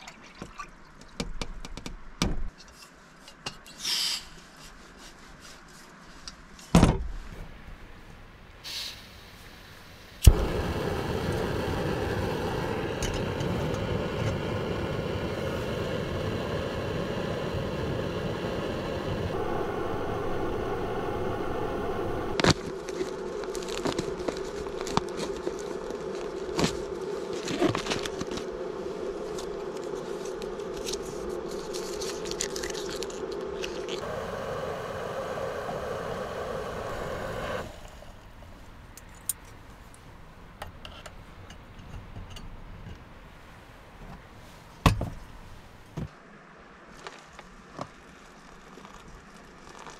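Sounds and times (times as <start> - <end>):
camping stove hissing: 8.6 - 38.4
foil pouch crinkling and tearing: 22.4 - 28.4, 30.7 - 34.0.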